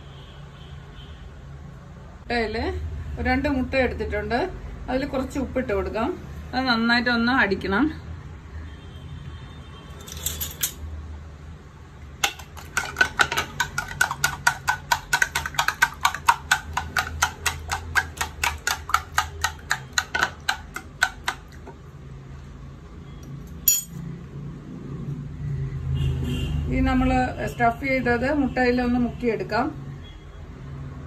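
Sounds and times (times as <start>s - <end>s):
spoon beating eggs in plastic bowl: 12.2s - 21.8s.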